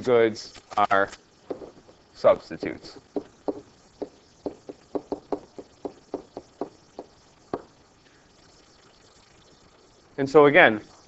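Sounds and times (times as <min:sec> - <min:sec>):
stylus tapping on writing surface: 0:01.5 - 0:01.7, 0:03.2 - 0:07.7.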